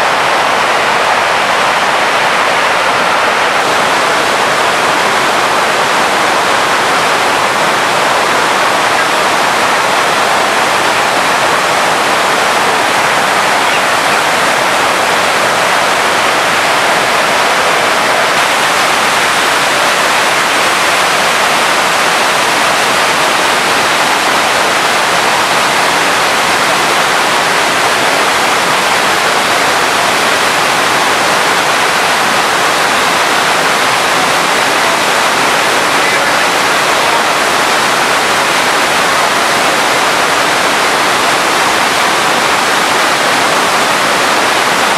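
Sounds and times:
waterfall rushing and crashing: 0.0s - 44.9s.

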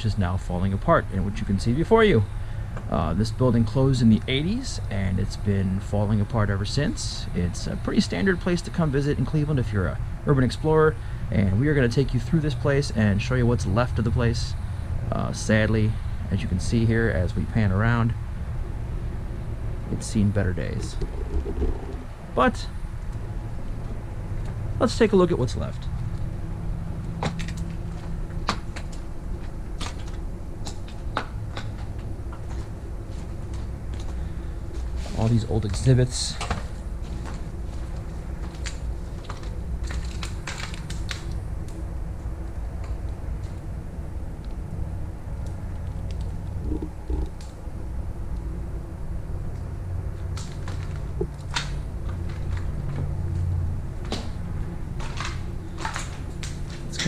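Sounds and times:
low steady hum: 0.0s - 57.0s
low rumble: 16.5s - 24.8s, 25.9s - 49.0s
footsteps crunching on debris: 27.2s - 41.0s.

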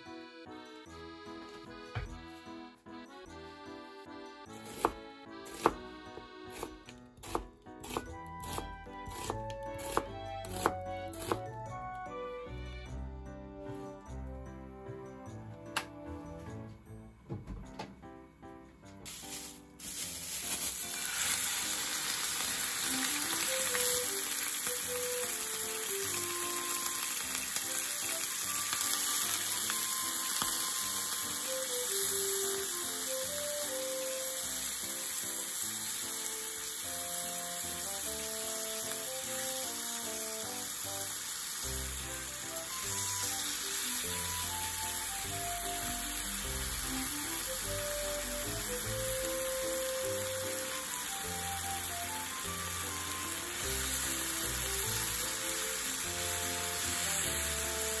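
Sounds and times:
meat and onion sizzling in oil: 6.5s - 11.4s, 19.1s - 58.0s.

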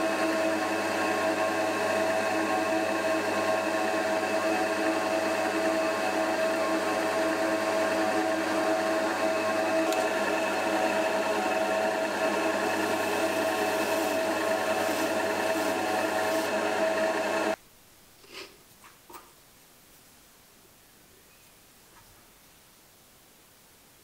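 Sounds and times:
drill press humming: 0.0s - 17.6s.

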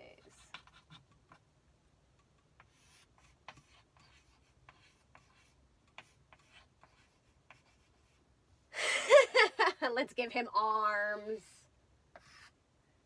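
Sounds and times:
chalk scratching on chalkboard: 0.1s - 1.4s, 2.6s - 8.2s, 12.1s - 12.6s.

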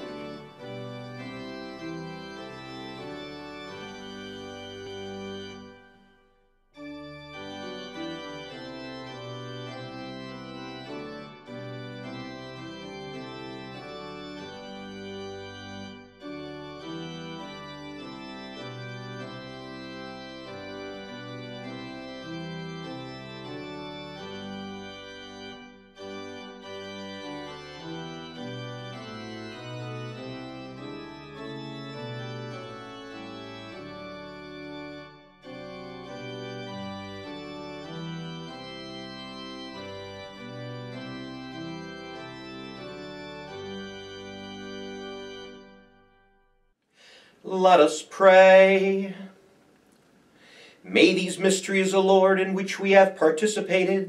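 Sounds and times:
organ chords: 0.0s - 54.0s.

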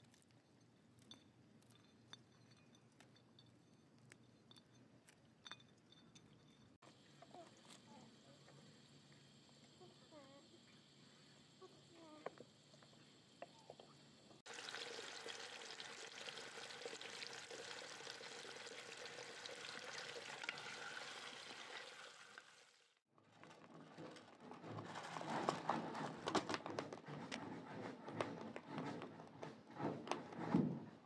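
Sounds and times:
potatoes sizzling in hot oil: 14.5s - 22.9s.

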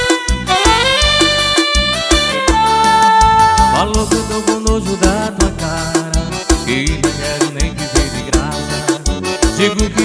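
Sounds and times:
brassy lead melody: 0.0s - 4.7s.

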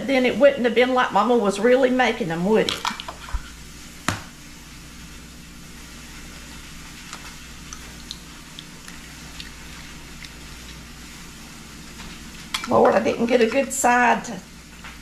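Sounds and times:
low hum: 3.4s - 15.0s.

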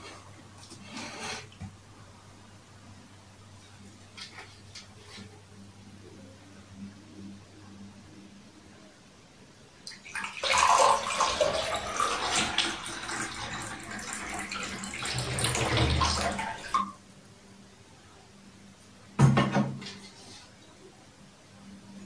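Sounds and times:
water pouring into cup: 9.9s - 16.9s.

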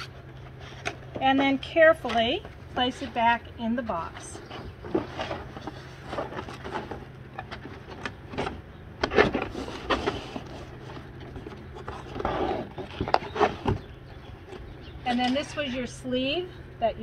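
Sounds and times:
cardboard box and plastic rustling: 4.0s - 14.7s.

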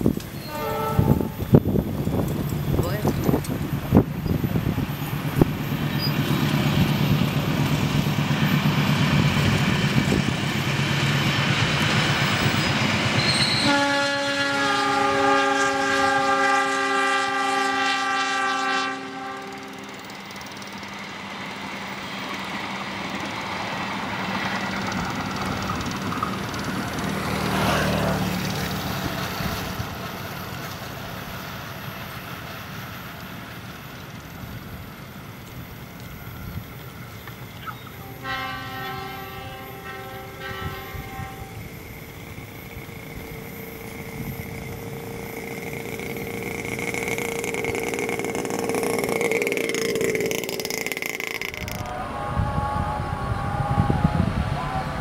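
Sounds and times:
locomotive engine drone: 0.0s - 55.0s
train wheels rolling on rails: 0.0s - 55.0s
train air horn chord: 0.4s - 1.5s, 13.4s - 20.1s, 38.0s - 41.7s.

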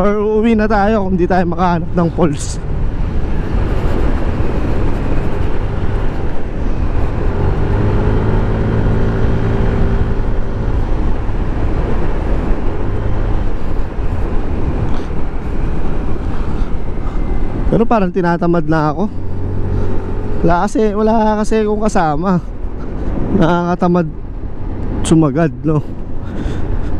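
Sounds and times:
road noise rushing: 0.0s - 26.9s
motorcycle engine at speed: 1.4s - 17.8s, 19.1s - 21.8s.

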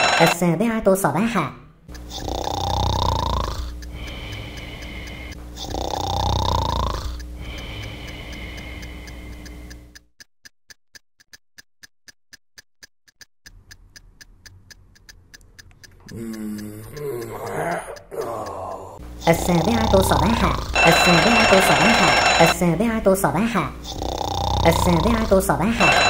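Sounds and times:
clock ticking quickly: 0.0s - 0.4s, 1.9s - 10.1s, 10.7s - 11.9s, 12.6s - 26.0s
cartoon snoring: 2.1s - 8.8s, 16.1s - 22.3s, 23.8s - 25.8s.

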